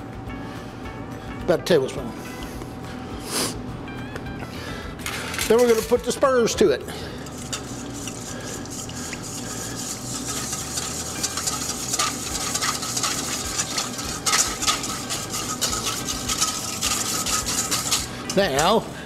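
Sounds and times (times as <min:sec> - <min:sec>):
whisk scraping metal bowl: 0:05.3 - 0:06.2, 0:07.1 - 0:18.8.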